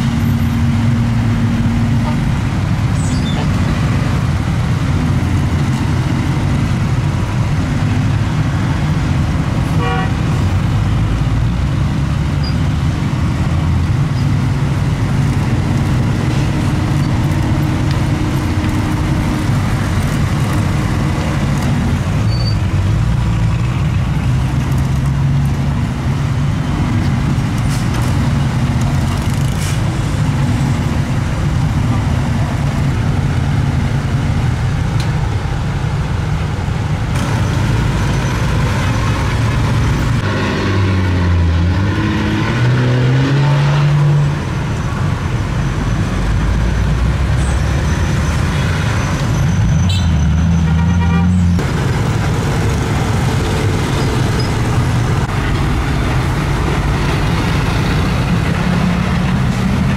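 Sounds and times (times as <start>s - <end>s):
truck engines idling: 0.0s - 40.3s, 44.4s - 59.9s
passing road traffic: 0.0s - 59.9s
vehicle horn toot: 9.8s - 10.2s, 49.8s - 51.4s.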